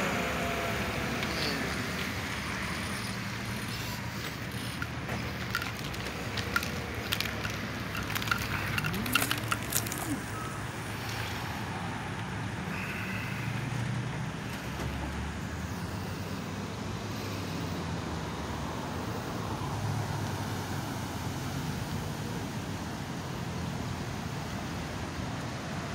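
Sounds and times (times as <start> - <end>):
low hum of road vehicles: 0.0 - 25.9
sharp clicks and rattles: 3.0 - 10.4.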